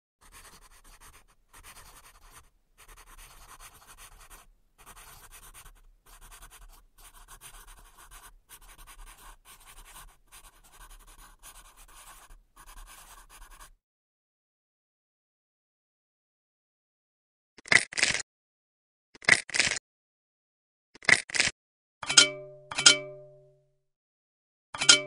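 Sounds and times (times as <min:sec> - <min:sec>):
pen scratching on paper: 0:00.2 - 0:13.8.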